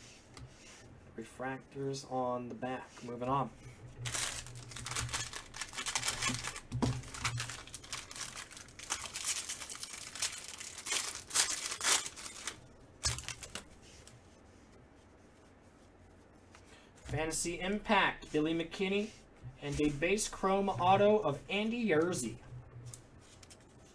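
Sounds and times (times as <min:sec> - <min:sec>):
foil wrapper crinkling and tearing: 0:04.0 - 0:14.1.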